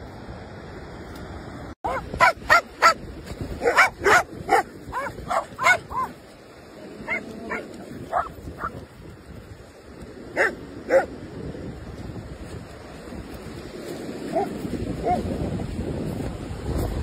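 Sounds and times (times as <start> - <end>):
surf: 0.0 - 17.0
wind: 0.0 - 17.0
dog barking: 1.8 - 3.0, 3.6 - 6.1, 7.0 - 8.8, 10.4 - 11.1, 14.3 - 15.2.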